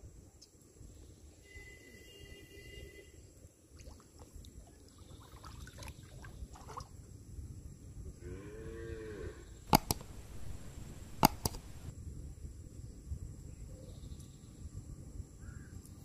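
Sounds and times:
cow mooing: 8.2 - 9.5.

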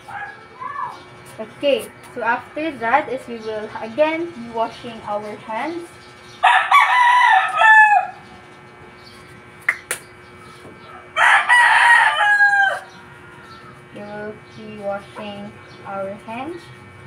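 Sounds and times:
rooster crowing: 6.4 - 8.4, 10.8 - 13.9.

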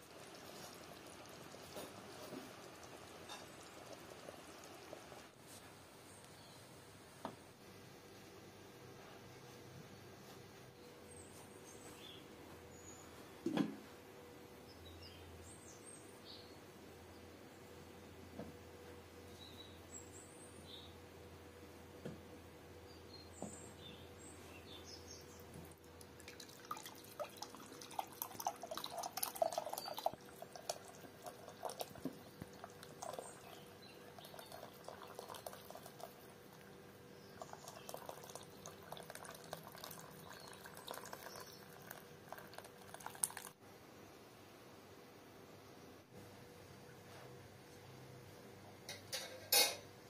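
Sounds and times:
broth pouring and splashing: 0.0 - 5.4, 25.6 - 43.6.

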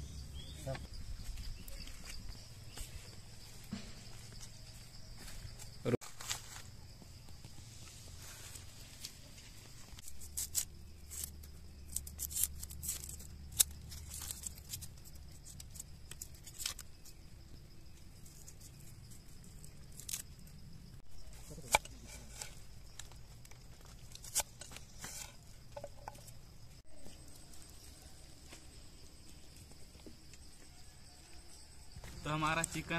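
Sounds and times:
knife striking wooden board: 21.7 - 22.5.

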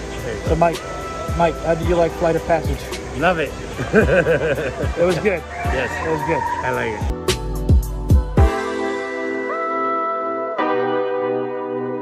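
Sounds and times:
held chord: 7.6 - 12.0.

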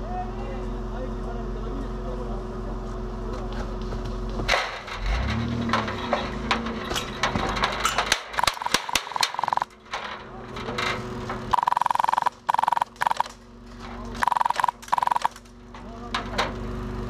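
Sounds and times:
engine running low hum: 0.0 - 17.0
irregular clicks and knocks: 5.4 - 13.4, 14.2 - 16.3.

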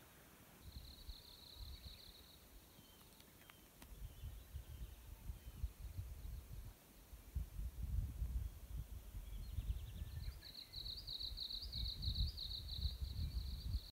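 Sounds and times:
wind buffeting microphone: 3.9 - 10.4, 11.6 - 13.9.

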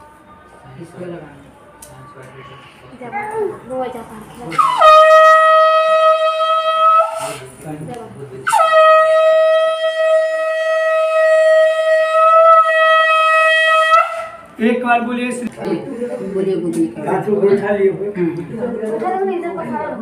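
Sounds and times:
conch shell blasts: 4.5 - 7.4, 8.5 - 14.6.

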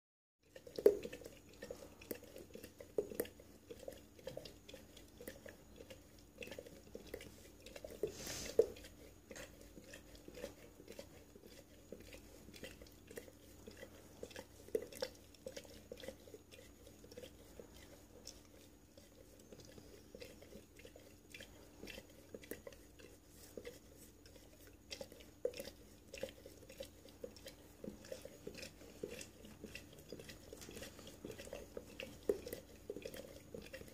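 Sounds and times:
dog lapping water: 0.4 - 33.9.

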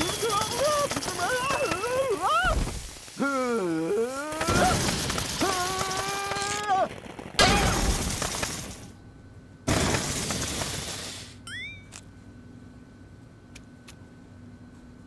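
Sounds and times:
character crying out: 0.0 - 2.6, 3.2 - 7.8
cartoon explosion: 4.0 - 8.8.

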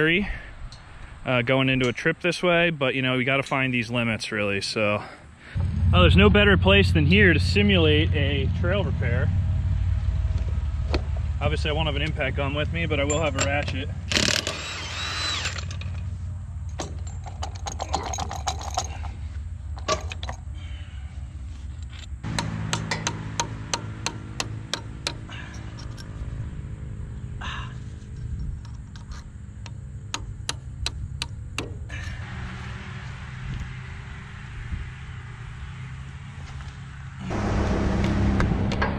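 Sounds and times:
steady low hum: 5.0 - 32.3, 37.2 - 38.9
loud burst of noise: 37.2 - 38.9.

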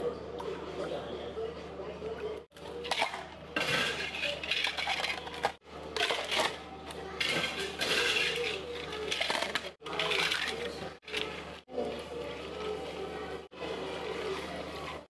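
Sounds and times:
ice cubes clinking into plastic cups: 2.8 - 6.6, 7.2 - 11.3.

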